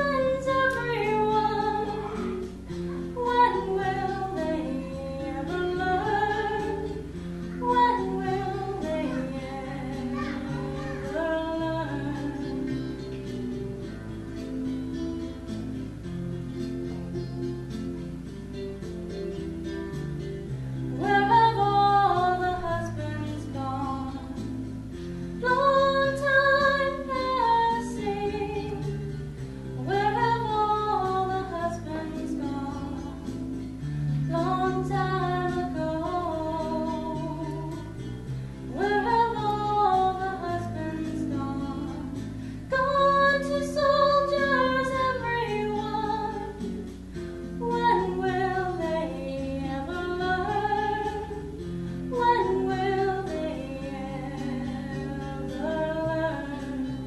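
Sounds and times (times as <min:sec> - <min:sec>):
woman singing slow song: 0:00.0 - 0:14.8, 0:20.4 - 0:57.0
guitar accompaniment: 0:00.0 - 0:57.0.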